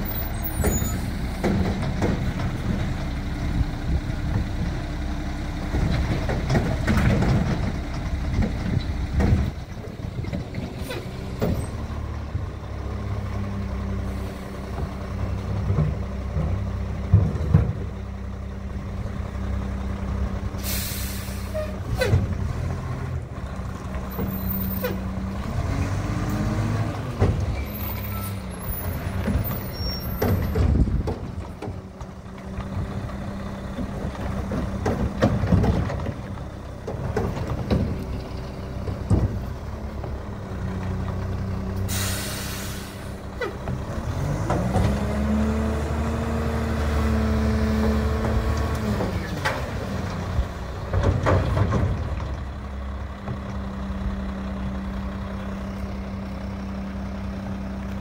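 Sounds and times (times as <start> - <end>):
air brake hiss: 20.6 - 21.8, 41.9 - 43.2
engine revving: 25.2 - 27.3, 43.8 - 50.2
diesel truck engine idling: 49.8 - 58.0.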